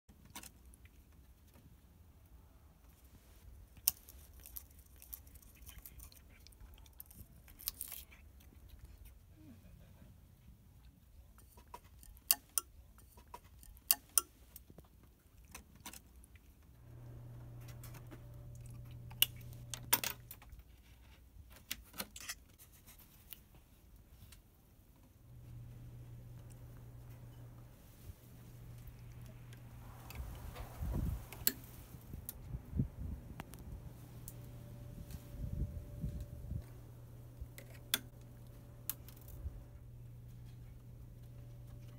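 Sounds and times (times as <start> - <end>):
cat crunching ice: 3.7 - 9.2, 11.2 - 20.6, 28.3 - 31.7
low steady hum: 16.2 - 20.8, 23.8 - 41.9.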